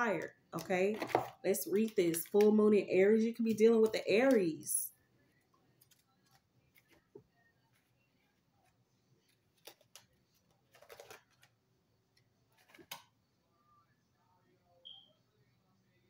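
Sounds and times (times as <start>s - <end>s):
paper pages flicking: 9.5s - 11.5s.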